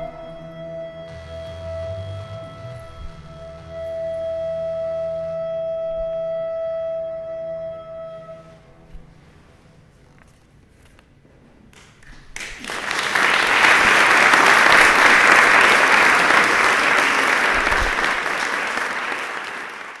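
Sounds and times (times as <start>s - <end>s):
audience applauding: 12.4s - 20.0s.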